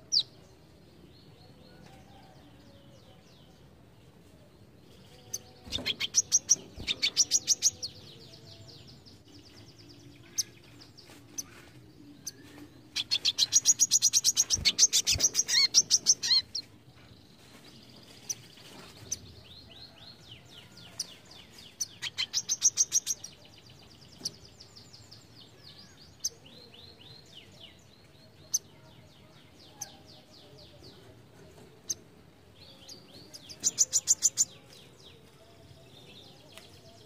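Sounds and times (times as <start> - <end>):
bird chirps: 5.2 - 8.0, 32.8 - 34.8.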